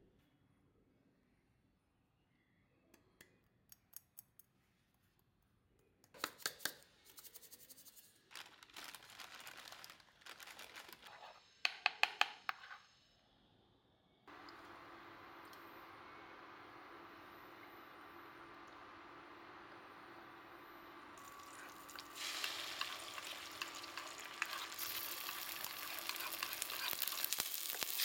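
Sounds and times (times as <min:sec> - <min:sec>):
containers clicking and tapping: 0:11.7 - 0:12.6, 0:21.2 - 0:28.0
salt shaken into a wok: 0:21.2 - 0:28.0.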